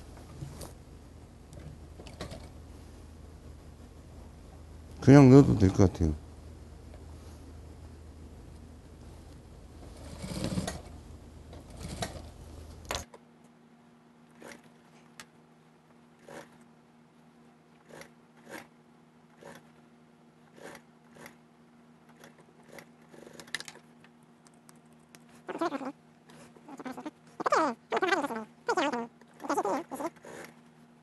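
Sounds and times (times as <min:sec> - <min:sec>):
faint steady hum: 0:00.0 - 0:31.0
sewing machine running: 0:09.9 - 0:12.3.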